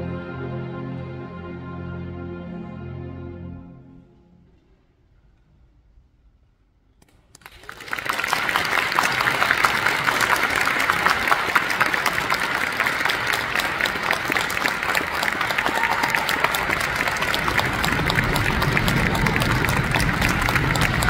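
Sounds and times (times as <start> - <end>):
audience applauding: 7.3 - 21.0.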